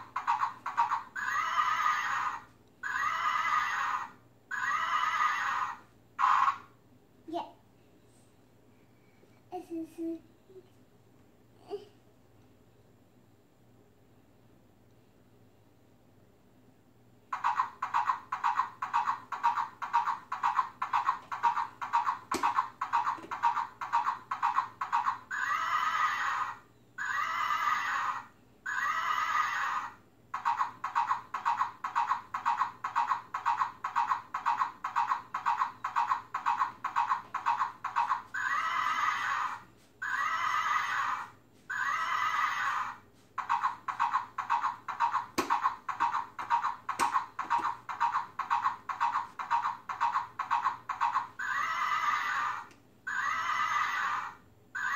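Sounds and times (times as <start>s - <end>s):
recorded horse whinnies: 0.2s - 6.7s, 24.5s - 31.7s, 37.5s - 45.8s, 50.6s - 54.9s
clip-clop hoofbeats from tinny speaker: 17.4s - 25.3s, 30.4s - 38.6s, 43.4s - 51.5s.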